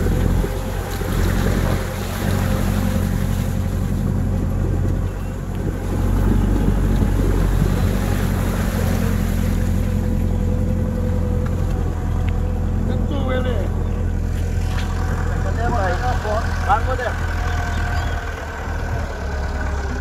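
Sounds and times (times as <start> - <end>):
wind noise on microphone: 0.0 - 12.9
vehicle engine droning: 0.0 - 20.0.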